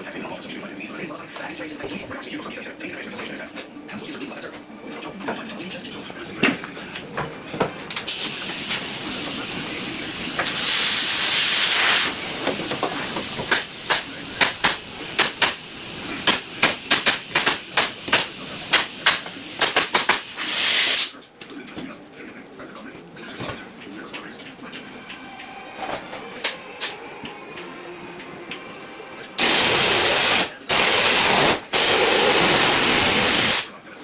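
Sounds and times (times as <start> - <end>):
compressed air hissing: 8.1 - 21.1, 29.4 - 33.7
nail gun firing into wood: 16.2 - 20.3.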